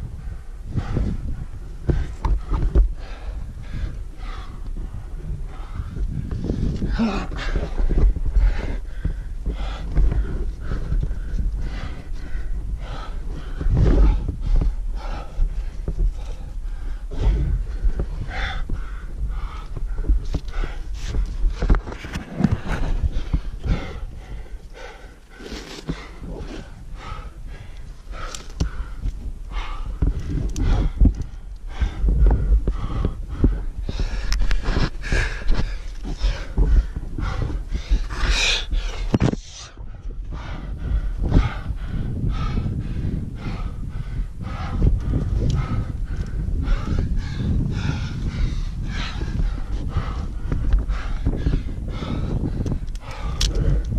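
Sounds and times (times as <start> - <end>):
person panting heavily: 0.0 - 53.9.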